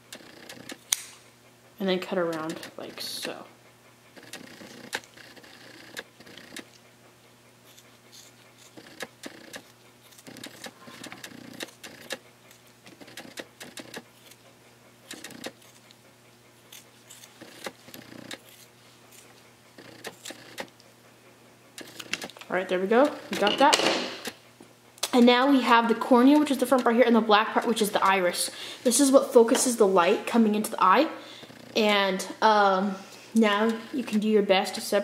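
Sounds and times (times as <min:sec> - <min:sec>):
scissors snipping: 0:00.1 - 0:01.2, 0:02.2 - 0:03.4, 0:07.7 - 0:14.4, 0:15.1 - 0:16.0, 0:16.7 - 0:19.3, 0:19.9 - 0:20.7.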